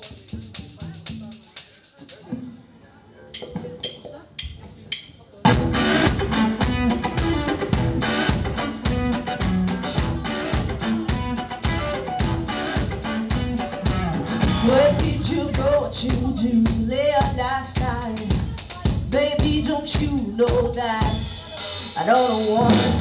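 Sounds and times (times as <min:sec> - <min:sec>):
tambourine shakes: 0:00.0 - 0:03.3, 0:05.2 - 0:22.0
rock band playing: 0:05.5 - 0:17.0, 0:21.0 - 0:23.0.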